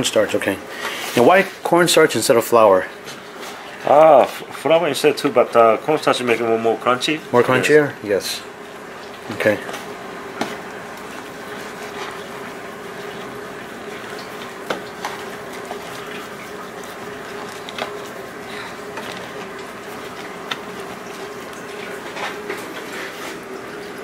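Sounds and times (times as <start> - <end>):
kitchen background hiss: 0.0 - 24.0
steady hum: 0.0 - 24.0.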